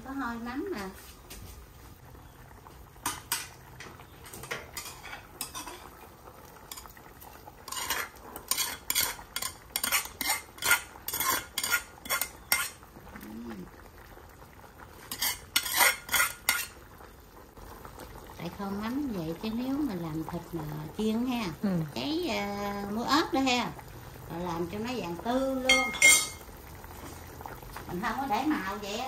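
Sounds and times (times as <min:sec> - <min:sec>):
metal ladle scraping cookware: 0:04.2 - 0:06.0, 0:07.6 - 0:12.8, 0:15.0 - 0:16.8, 0:25.7 - 0:26.4.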